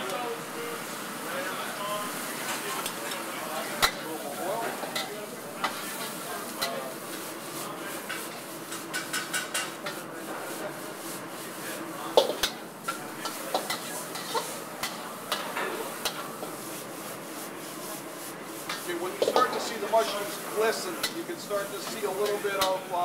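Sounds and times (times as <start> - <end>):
frying sizzle: 0.0 - 23.0
metal spatula scraping a wok: 4.7 - 22.8.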